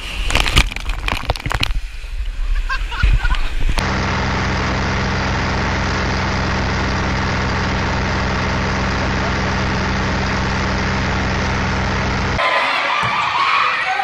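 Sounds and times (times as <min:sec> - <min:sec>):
engine idling: 0:03.8 - 0:12.4.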